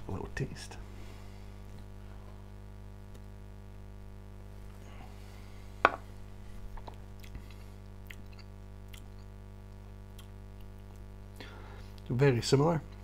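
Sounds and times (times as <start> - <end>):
electrical hum: 0.0 - 13.0
mouth and lip sounds: 7.1 - 11.1.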